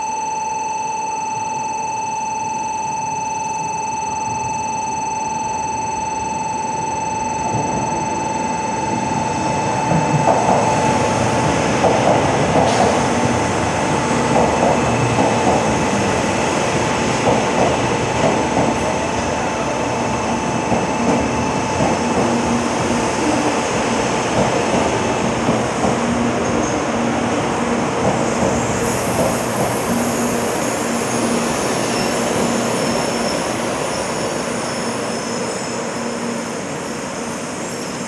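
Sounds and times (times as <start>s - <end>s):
high electronic tone: 0.0s - 11.2s
train rushing past: 9.2s - 38.0s
train cars clattering: 9.9s - 19.7s.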